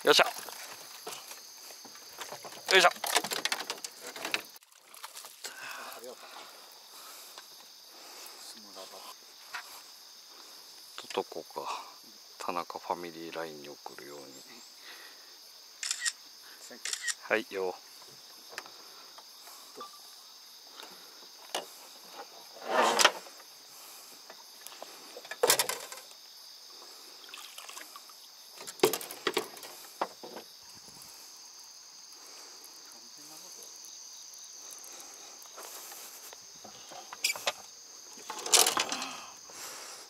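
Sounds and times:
insects buzzing: 0.0s - 40.0s
short bursts of noise: 15.8s - 16.2s.

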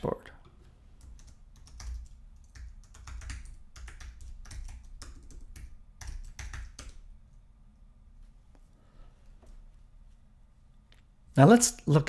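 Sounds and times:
typing on keyboard: 1.0s - 7.1s.

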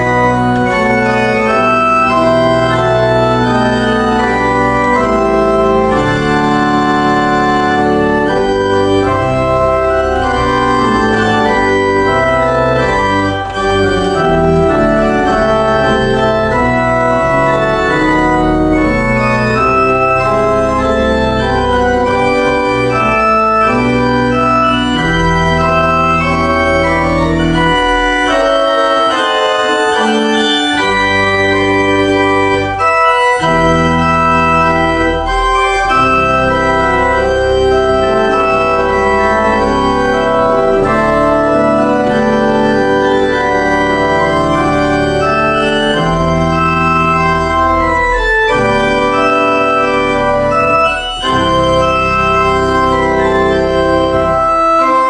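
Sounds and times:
church organ chords: 0.0s - 55.0s.

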